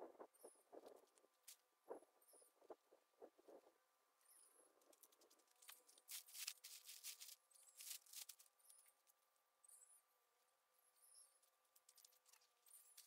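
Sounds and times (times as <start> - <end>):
rustling and scuffing on tarp: 6.1 - 8.4.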